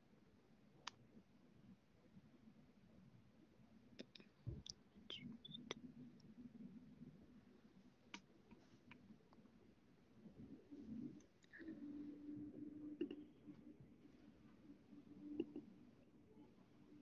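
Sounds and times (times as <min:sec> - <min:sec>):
soft low thump: 0:04.4 - 0:04.7.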